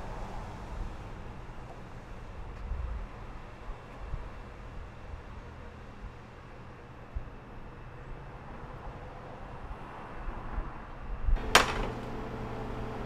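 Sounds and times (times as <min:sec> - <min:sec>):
low background hum: 0:11.4 - 0:13.0.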